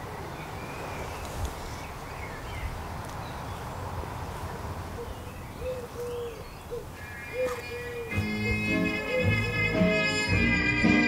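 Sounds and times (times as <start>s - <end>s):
small birds chirping: 0.0s - 10.0s
low hoot-like bird calls: 5.0s - 9.5s.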